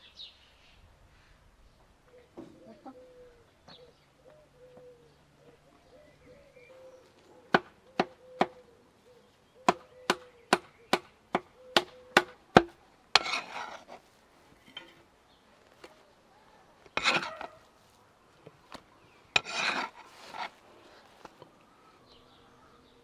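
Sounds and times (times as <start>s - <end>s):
cleaver chopping meat on wood: 9.6s - 13.3s
blade scraping across wood: 13.1s - 15.1s, 16.9s - 17.7s, 19.3s - 20.6s.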